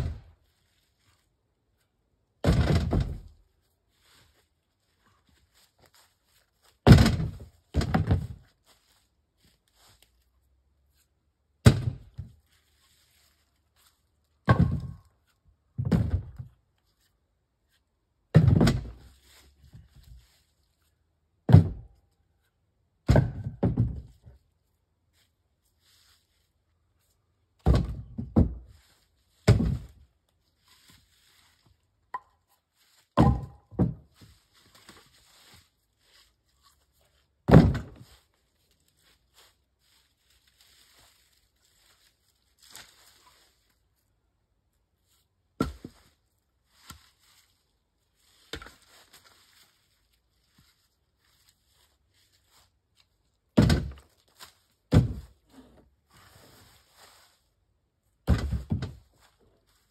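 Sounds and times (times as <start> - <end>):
heavy thuds on wood: 2.4 - 3.3, 6.9 - 8.3.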